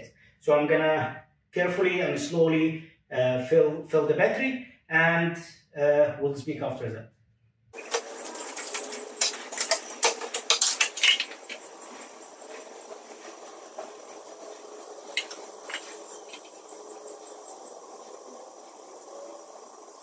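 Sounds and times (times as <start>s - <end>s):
faint steady hiss: 7.8s - 20.0s
plastic clicks and crinkles: 8.6s - 11.6s
small ticks: 12.0s - 17.7s.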